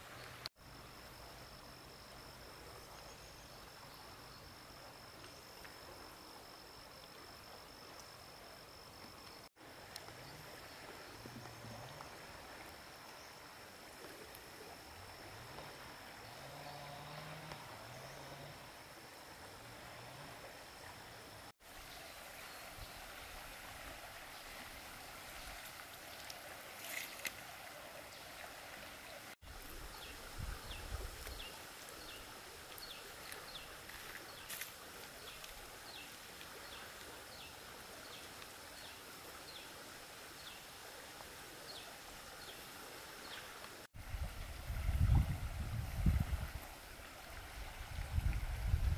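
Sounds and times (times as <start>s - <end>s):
hiss of water: 17.1s - 48.9s.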